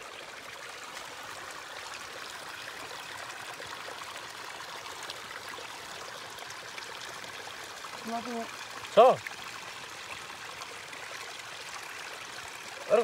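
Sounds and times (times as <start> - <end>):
stream running over rocks: 0.0 - 13.0.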